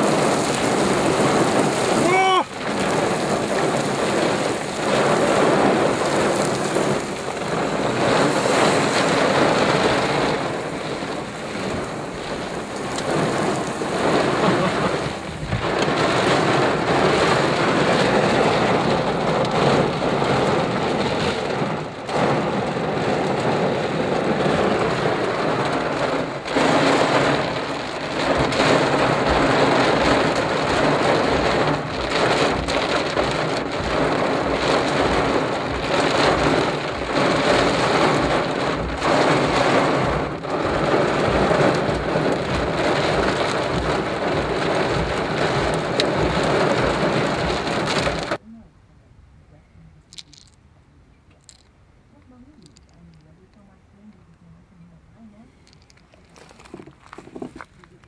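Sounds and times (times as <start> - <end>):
heavy rain on car roof: 0.0 - 48.4, 50.1 - 50.6, 51.4 - 54.1, 55.2 - 58.0.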